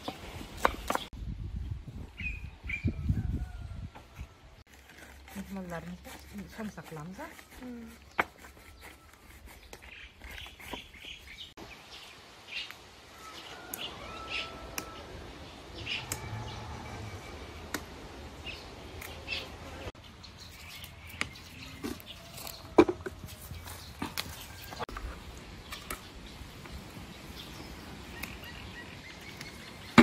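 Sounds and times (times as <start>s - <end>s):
herbs being picked rustling: 4.7s - 11.3s
small birds chirping: 5.4s - 22.7s, 23.5s - 30.0s.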